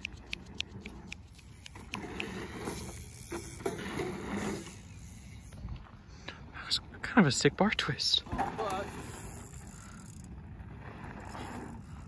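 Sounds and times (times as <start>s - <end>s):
bicycle hub ratcheting clicks: 0.0s - 5.6s, 8.6s - 10.4s
bike tyres rolling over dirt: 0.1s - 6.2s, 7.0s - 12.0s.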